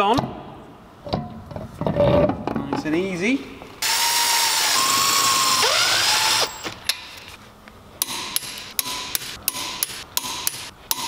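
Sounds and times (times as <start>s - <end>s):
power tool motor whine: 3.8s - 6.7s.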